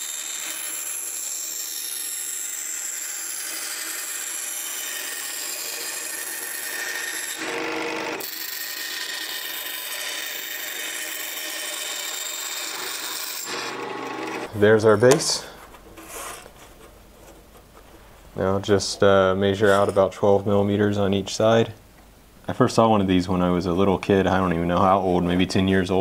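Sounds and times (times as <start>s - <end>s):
scroll saw cutting wood: 0.0s - 17.0s.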